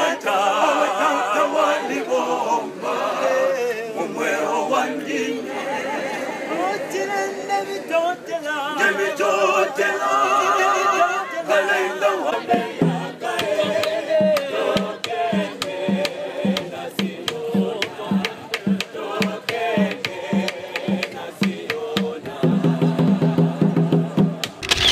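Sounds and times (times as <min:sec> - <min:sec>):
choir singing: 0:00.0 - 0:24.4
drumbeat: 0:12.5 - 0:24.6
sharp clicks: 0:24.4 - 0:24.9.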